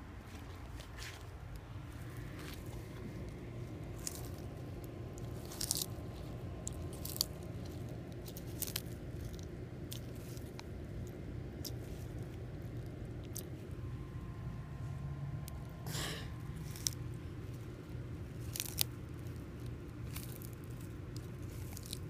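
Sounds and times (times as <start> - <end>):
tortoise crunching leaves: 0.1 - 22.0.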